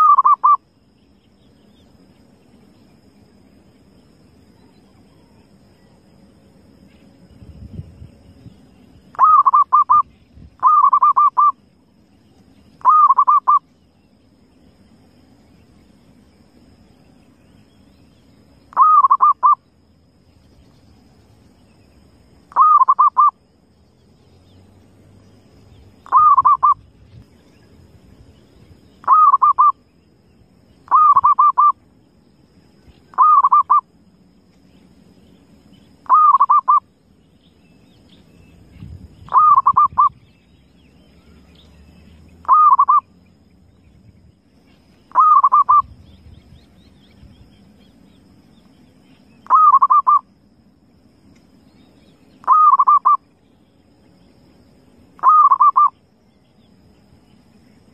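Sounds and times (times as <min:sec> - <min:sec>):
dove cooing trills: 0:00.0 - 0:00.6, 0:09.1 - 0:11.6, 0:12.8 - 0:13.7, 0:18.7 - 0:19.6, 0:22.5 - 0:23.4, 0:26.0 - 0:26.9, 0:29.0 - 0:29.8, 0:30.9 - 0:31.8, 0:33.1 - 0:33.9, 0:36.0 - 0:36.9, 0:39.2 - 0:40.3, 0:42.4 - 0:43.1, 0:45.1 - 0:45.9, 0:49.4 - 0:50.3, 0:52.4 - 0:53.2, 0:55.2 - 0:56.0
faint low rumble: 0:23.4 - 0:49.6.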